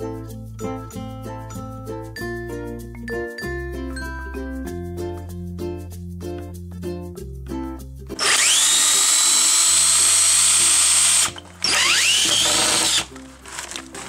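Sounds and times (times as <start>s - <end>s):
cordless drill driving screws: 8.2s - 14.0s.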